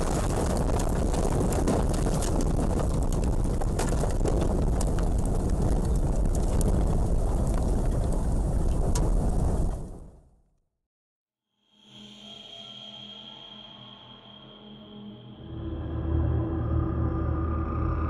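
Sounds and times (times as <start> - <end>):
storm wind on microphone: 0.0 - 10.2.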